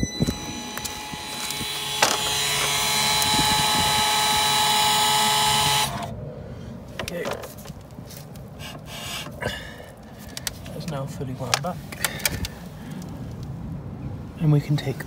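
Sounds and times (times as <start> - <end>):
parking brake motor whining: 0.0 - 6.1.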